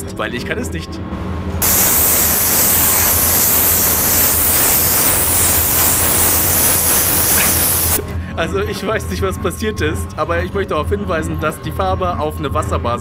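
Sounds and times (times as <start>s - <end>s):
airbrush spraying hiss: 1.6s - 8.0s.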